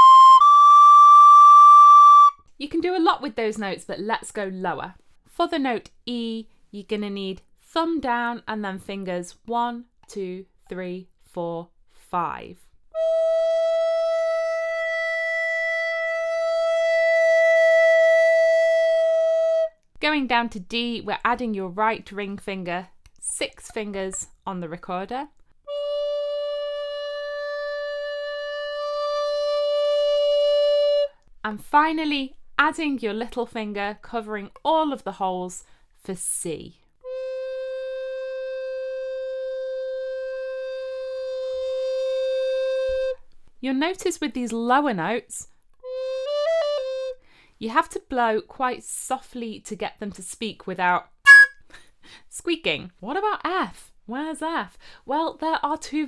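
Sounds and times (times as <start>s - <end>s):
recorder playing long note: 0.0s - 2.4s, 13.0s - 19.6s, 25.7s - 31.1s, 51.3s - 51.6s.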